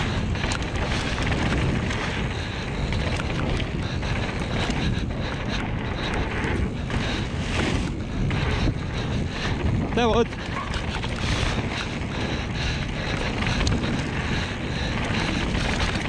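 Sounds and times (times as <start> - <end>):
bike knocks and rattles: 0.0 - 16.0
bike tyres rumbling over dirt: 0.0 - 16.0
wind buffeting microphone: 0.0 - 16.0.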